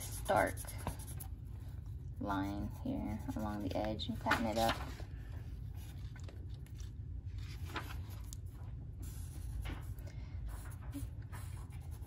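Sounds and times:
marker stroking on paper: 0.0s - 1.3s
low background hum: 0.0s - 12.0s.

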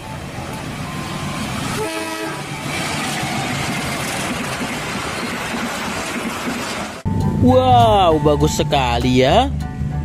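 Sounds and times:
train rumbling past: 0.0s - 10.0s
train horn blast: 1.7s - 2.8s.

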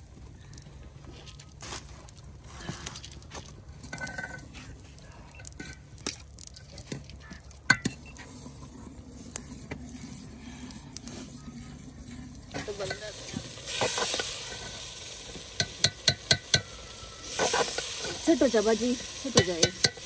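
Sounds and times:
spoon scraping a pan: 12.5s - 14.8s, 15.5s - 18.2s
food sizzling in a pan: 12.5s - 20.0s.

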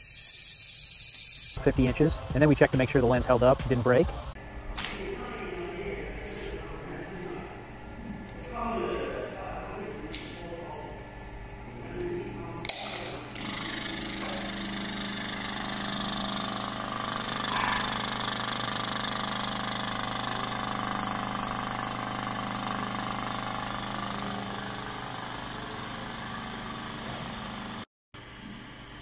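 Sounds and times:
spindle spinning bearing: 13.3s - 27.8s.

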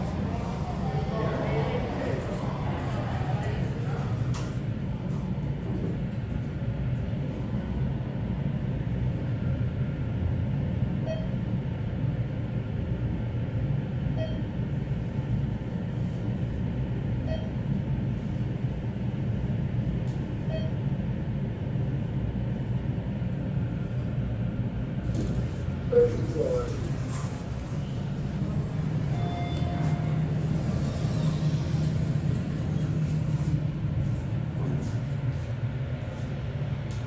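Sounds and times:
elevator travel rumble: 0.0s - 37.0s
short faint beeps: 11.0s - 11.4s, 14.1s - 14.5s, 17.2s - 17.6s, 20.4s - 20.9s, 28.9s - 31.4s.

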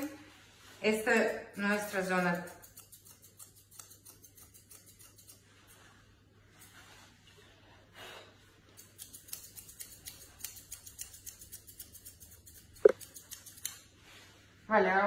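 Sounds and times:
scissors snipping hair: 1.5s - 5.8s, 8.7s - 13.9s.

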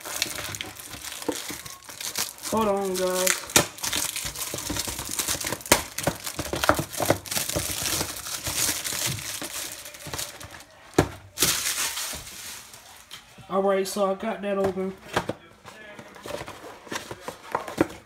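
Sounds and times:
packaging crinkling and tearing: 0.0s - 13.3s.

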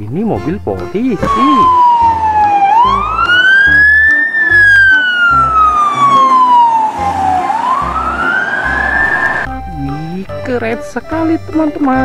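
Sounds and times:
police siren wailing: 1.2s - 9.5s.

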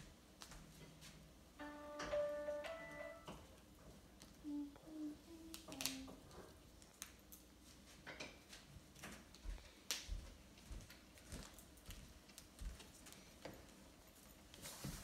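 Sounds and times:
foam pieces clicking and tapping: 5.5s - 6.1s, 6.7s - 7.5s.

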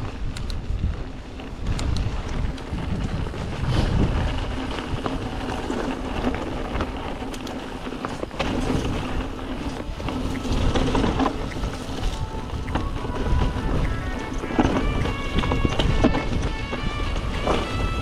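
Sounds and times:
wind rumbling on microphone: 0.0s - 18.0s
faint music: 8.2s - 18.0s.

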